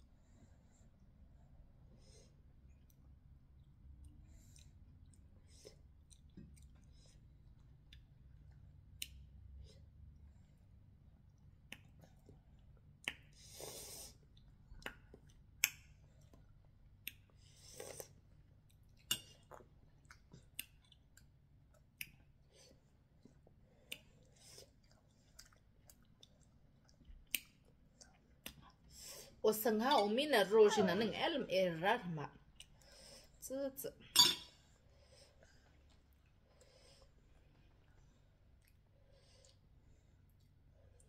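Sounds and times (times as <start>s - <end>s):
person chewing with lip smacks: 2.7s - 9.4s, 14.2s - 22.4s, 23.2s - 28.8s.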